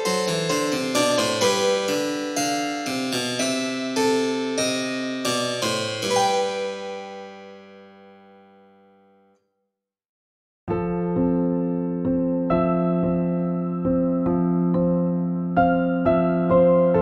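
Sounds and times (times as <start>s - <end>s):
keyboard music: 0.0s - 8.9s.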